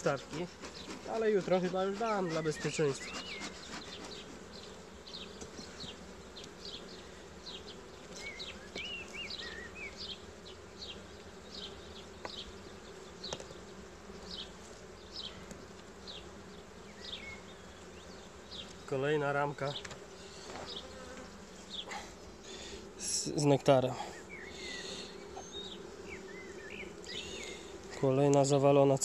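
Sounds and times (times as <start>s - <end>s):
honeybees buzzing: 0.0s - 29.0s.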